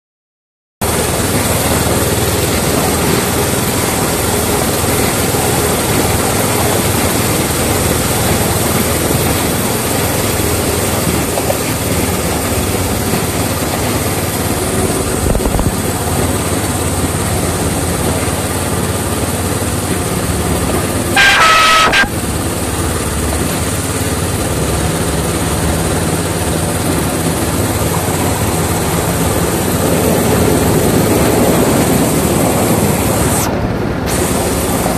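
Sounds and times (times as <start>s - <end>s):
locomotive running along track: 0.8s - 34.9s
locomotive horn toot: 21.0s - 22.4s.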